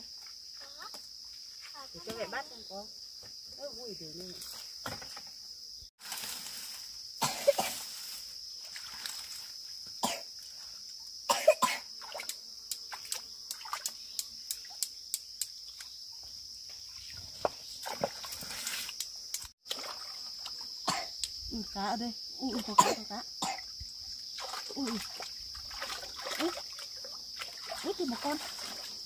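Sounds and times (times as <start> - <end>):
insects chorus: 0.0 - 29.0
hands splashing in stream water: 12.0 - 14.7, 17.8 - 19.0, 19.6 - 20.6, 24.4 - 29.0
sharp clicks: 19.0 - 19.5.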